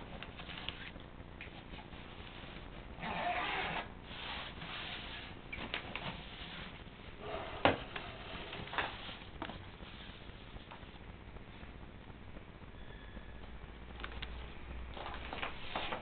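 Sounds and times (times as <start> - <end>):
clicks: 13.4 - 14.4.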